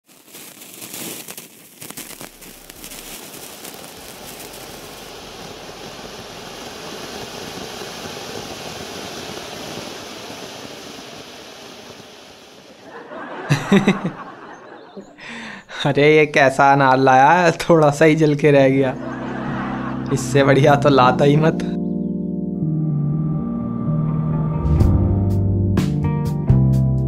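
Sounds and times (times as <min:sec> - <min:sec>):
firework fountain crackling and hissing: 0:00.0 - 0:15.8, 0:18.7 - 0:21.2
person chuckling: 0:12.9 - 0:15.8.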